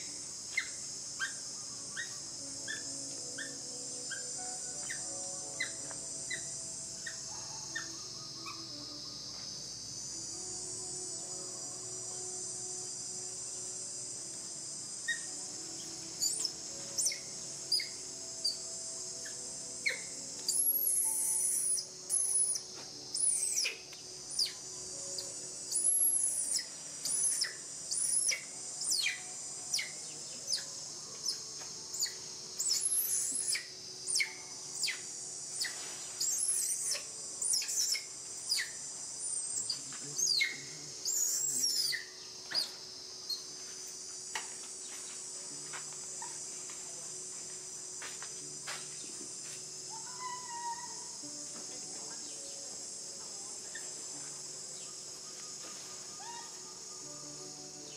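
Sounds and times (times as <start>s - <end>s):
crickets droning: 0.0s - 57.9s
monkey high-pitched cries: 2.0s - 8.7s, 15.1s - 15.3s, 16.2s - 18.6s, 19.2s - 22.6s, 23.2s - 24.6s, 25.7s - 30.6s, 32.0s - 35.0s, 35.6s - 38.8s, 39.6s - 42.7s, 49.9s - 51.2s, 56.2s - 56.8s.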